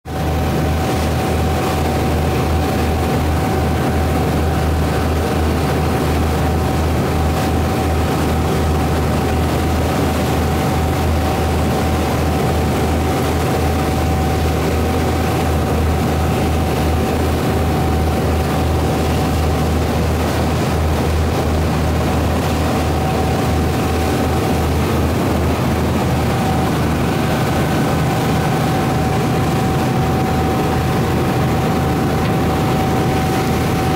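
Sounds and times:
boat engines droning: 0.1s - 33.9s
propeller wash churning: 0.1s - 33.9s.

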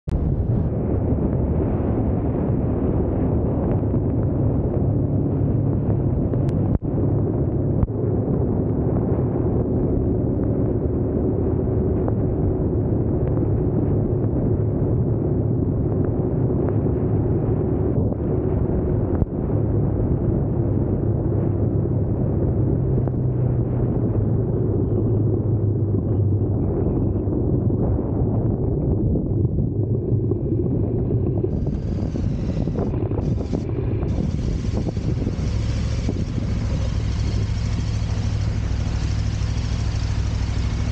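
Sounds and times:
wind rushing over microphone: 0.1s - 40.9s
motorcycle engine running: 29.5s - 40.9s.

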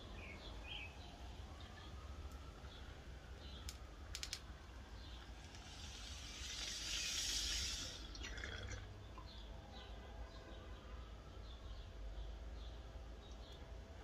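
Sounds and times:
sharp clicks: 3.6s - 4.5s
water bubbling in a bong: 5.6s - 9.4s.

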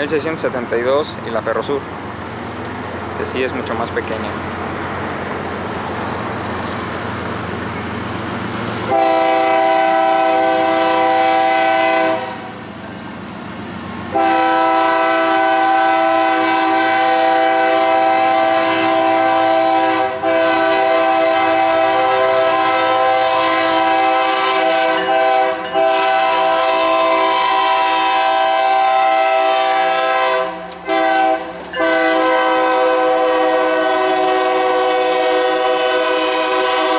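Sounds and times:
diesel freight train rumble: 0.0s - 36.9s
locomotive air horn blasts: 8.9s - 12.5s, 14.1s - 36.9s.

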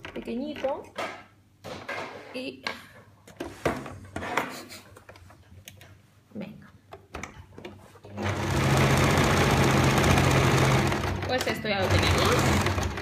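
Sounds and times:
electric sewing machine running: 8.2s - 13.0s.

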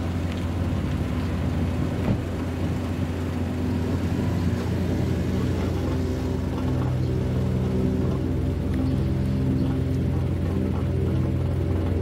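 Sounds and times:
low engine rumble: 0.0s - 12.0s.

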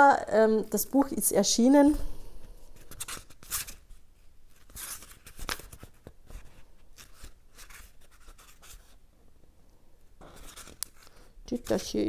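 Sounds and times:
book pages rustling: 2.8s - 9.0s, 10.2s - 12.0s.

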